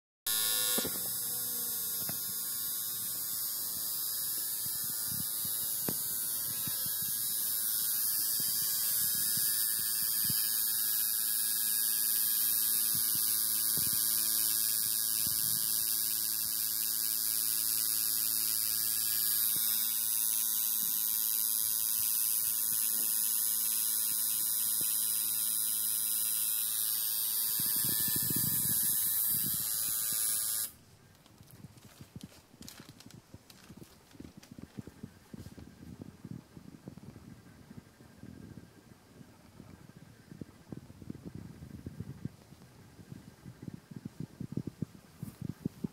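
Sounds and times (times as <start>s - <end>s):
tattoo machine buzzing: 0.3s - 30.8s.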